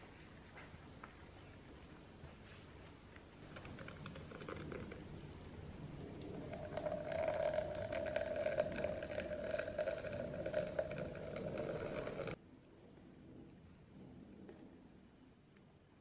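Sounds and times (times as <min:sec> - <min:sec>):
crackle: 0:02.8 - 0:13.1.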